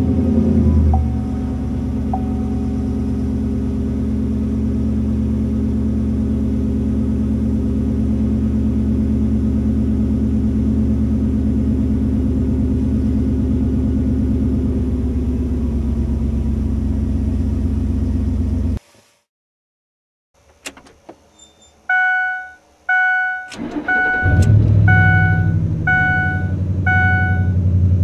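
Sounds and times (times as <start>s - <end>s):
truck engine idling: 0.8s - 6.5s, 21.9s - 28.0s.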